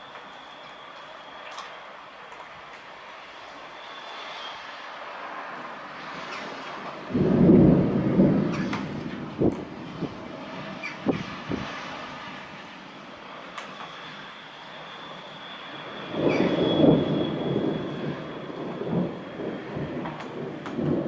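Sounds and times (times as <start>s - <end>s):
thunder rumble: 3.6s - 21.0s
thunder cracks: 6.1s - 11.9s, 15.8s - 21.0s.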